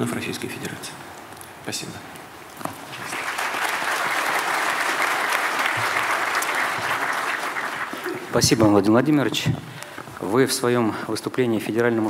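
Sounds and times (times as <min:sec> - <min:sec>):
audience applauding: 0:02.8 - 0:08.5.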